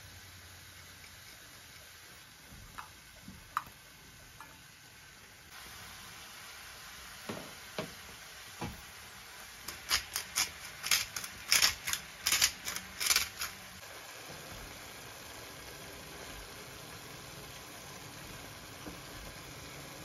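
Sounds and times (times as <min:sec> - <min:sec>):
spice grinder ratcheting clicks: 0:09.7 - 0:13.6.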